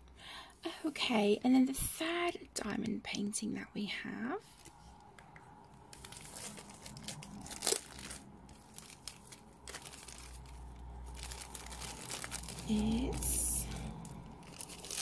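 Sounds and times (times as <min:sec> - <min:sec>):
plastic sleeve crinkling: 0:04.5 - 0:15.0.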